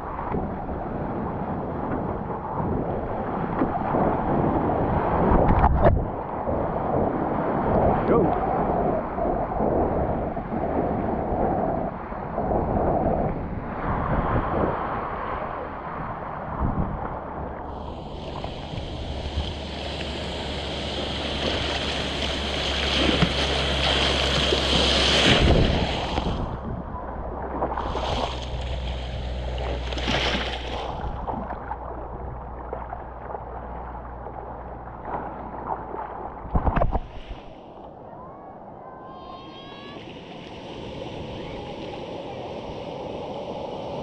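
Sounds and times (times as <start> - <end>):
wind buffeting microphone: 0.0 - 38.9, 40.0 - 44.0
ocean surf rushing: 0.0 - 44.0
sharp water splashes: 17.7 - 37.6.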